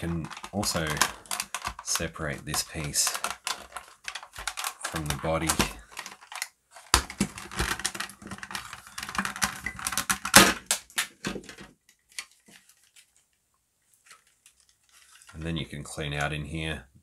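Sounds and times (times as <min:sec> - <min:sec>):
plastic clicks and rattles: 0:00.0 - 0:13.3.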